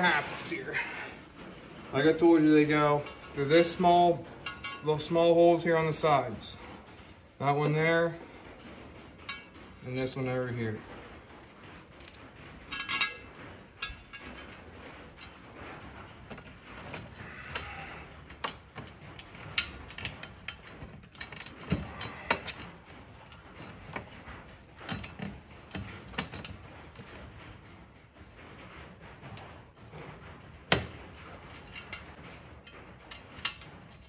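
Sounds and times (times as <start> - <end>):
metal brackets clinking: 0.0 - 6.4, 11.7 - 27.3, 30.0 - 34.0.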